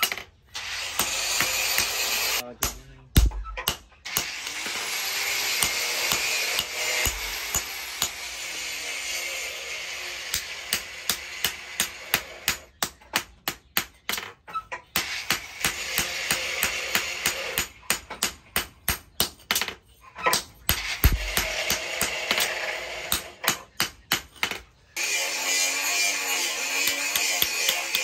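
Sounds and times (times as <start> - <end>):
hammer striking metal on anvil: 2.6 - 4.3, 5.5 - 8.2, 20.3 - 22.5, 26.7 - 28.0.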